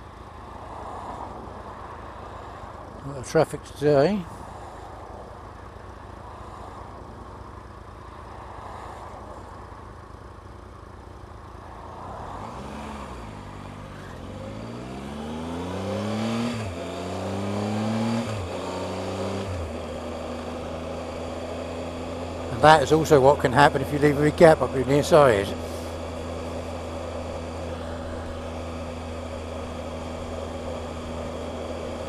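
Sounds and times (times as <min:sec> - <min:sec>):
wind and road rush: 0:00.0 - 0:32.0
motorcycle engine upshifting: 0:11.9 - 0:32.0.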